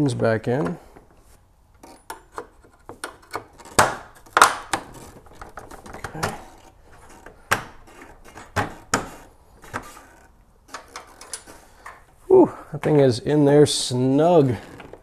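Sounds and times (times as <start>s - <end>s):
plastic knocks and clicks: 2.1s - 6.4s.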